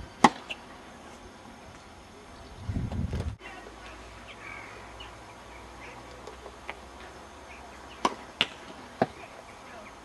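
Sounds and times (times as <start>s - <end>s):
birds chirping: 0.0s - 10.0s
tennis ball pops: 8.0s - 9.2s.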